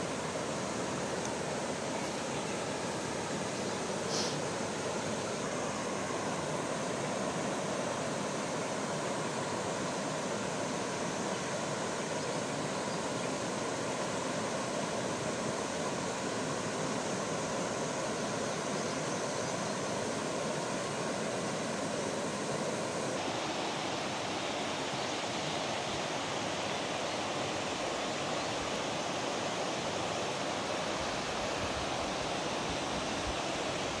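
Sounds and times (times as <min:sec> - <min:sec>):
river rushing over stones: 0:20.1 - 0:34.0.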